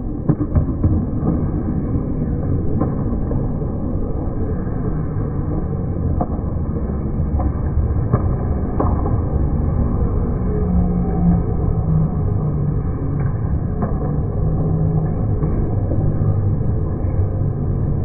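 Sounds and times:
arena low rumble: 0.0s - 18.0s.

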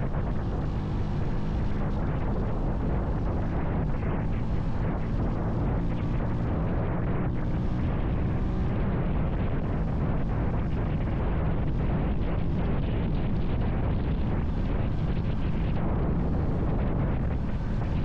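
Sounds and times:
motorcycle engine drone: 0.0s - 18.0s
wind buffeting microphone: 0.0s - 18.0s.

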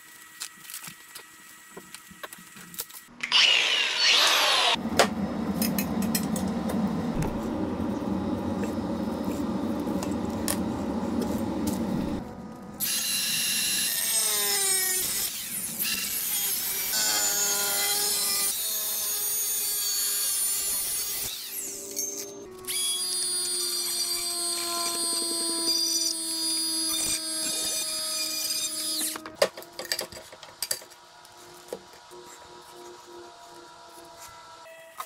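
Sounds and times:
power tool cutting metal: 3.2s - 4.8s, 12.8s - 29.2s.

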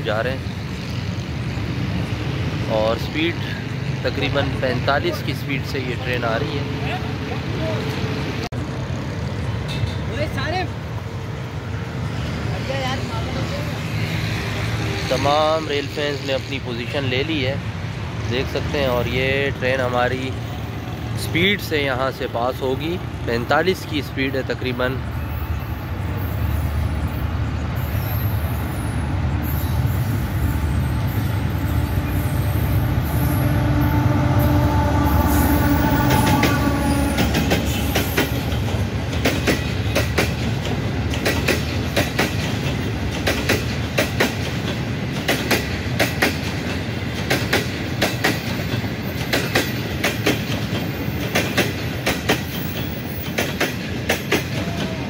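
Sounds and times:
diesel locomotive rumble: 0.0s - 55.0s
train wheels clacking on rail joints: 35.7s - 55.0s.

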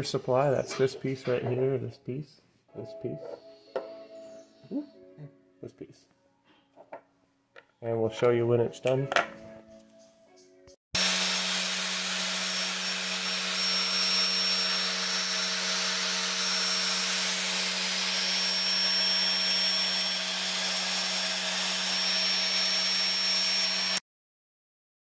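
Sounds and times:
angle grinder grinding a shaft: 11.0s - 24.0s.

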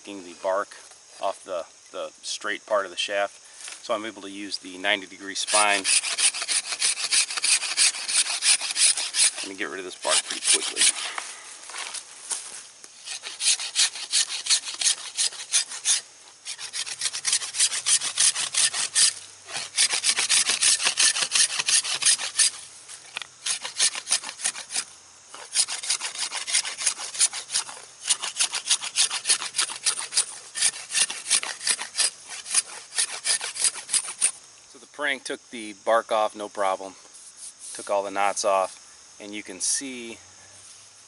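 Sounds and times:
blade scraping bark off wood: 5.3s - 34.4s.

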